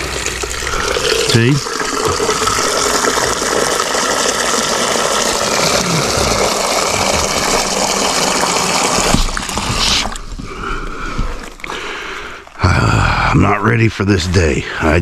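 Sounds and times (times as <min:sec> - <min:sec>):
hose water splashing into a bowl: 0:00.0 - 0:10.5.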